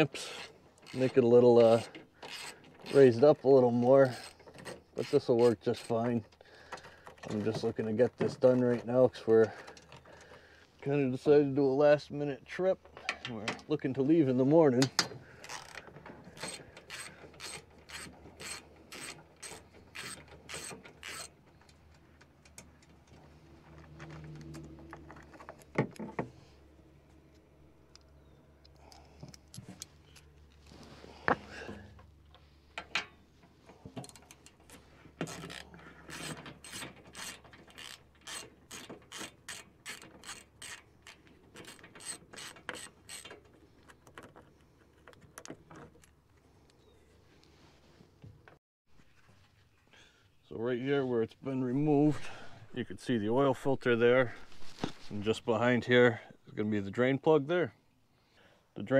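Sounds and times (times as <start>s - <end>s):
ratchet wrench clicking: 16.4s - 21.3s, 35.2s - 43.4s.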